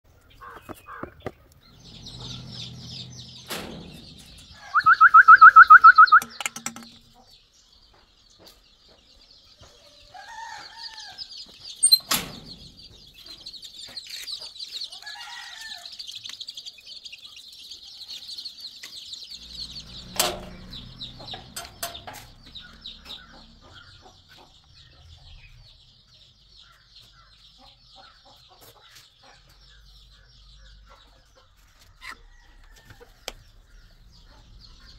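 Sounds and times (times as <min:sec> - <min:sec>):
chickens calling: 0:00.0 - 0:34.9
sharp knocks: 0:06.1 - 0:07.2.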